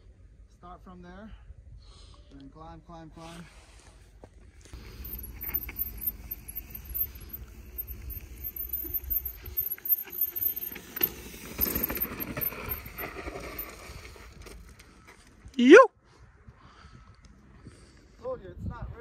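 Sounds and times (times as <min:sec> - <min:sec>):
bike tyres crunching over rock: 0:04.8 - 0:14.7
wind rumbling on microphone: 0:18.4 - 0:19.0.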